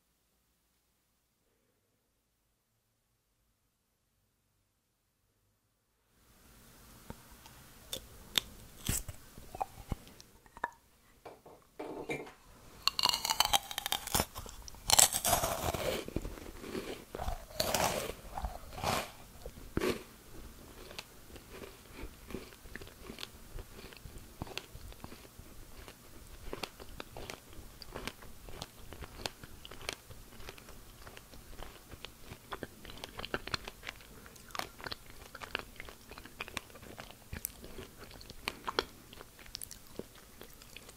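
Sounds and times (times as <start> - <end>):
crisp crunches of biting: 12.8 - 20.0
chewing with small crackles: 12.8 - 40.9.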